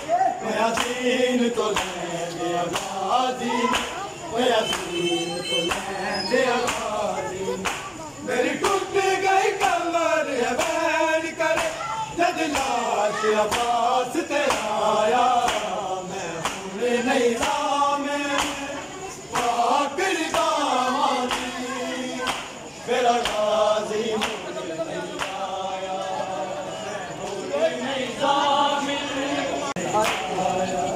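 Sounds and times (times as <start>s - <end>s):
men chanting in unison: 0.0s - 30.9s
hands slapping chests: 0.7s - 1.0s, 1.7s - 2.0s, 6.7s - 6.9s, 7.6s - 8.0s, 10.5s - 10.8s, 11.5s - 11.8s, 12.5s - 12.8s, 14.4s - 14.8s, 15.4s - 15.8s, 16.4s - 16.7s, 18.3s - 18.7s, 21.3s - 21.6s, 22.2s - 22.6s, 23.2s - 23.5s, 25.2s - 25.4s.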